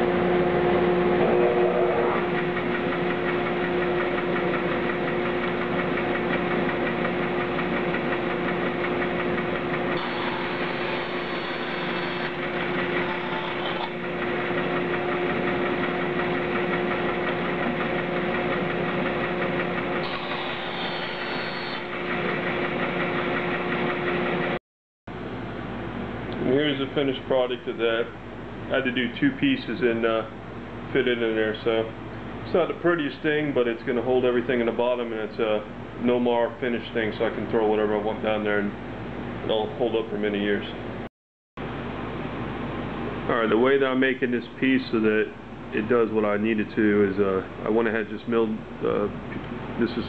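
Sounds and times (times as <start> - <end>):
bandsaw humming: 0.0 - 24.6
saw blade cutting wood: 10.0 - 14.0, 20.0 - 22.4.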